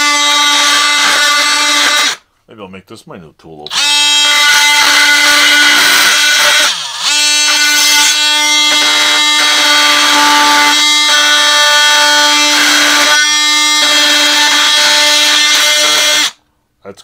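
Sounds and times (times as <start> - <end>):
oscillating multi-tool whining: 3.7 - 16.4.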